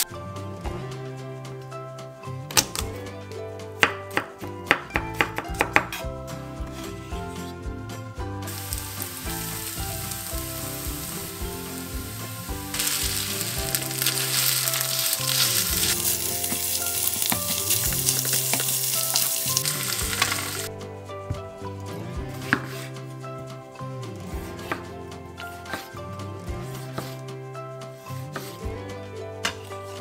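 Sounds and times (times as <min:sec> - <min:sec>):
meat and onion sizzling in a pan: 0:08.5 - 0:20.7.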